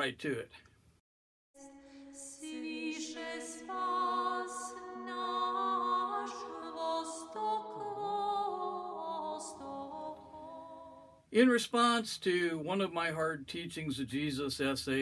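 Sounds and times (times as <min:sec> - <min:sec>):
a cappella choir singing chords: 0:01.6 - 0:11.2.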